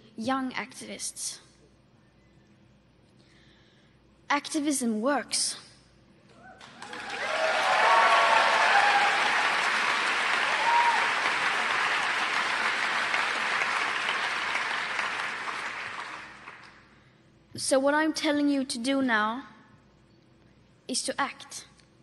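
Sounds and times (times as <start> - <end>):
audience applauding: 6.6 - 16.8.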